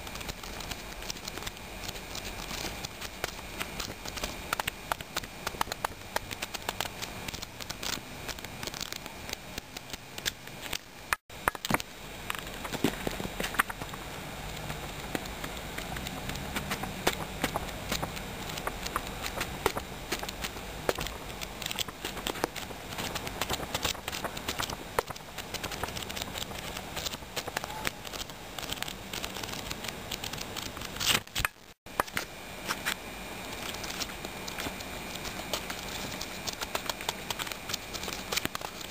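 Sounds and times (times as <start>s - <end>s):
book pages flipping: 11.5s - 38.9s.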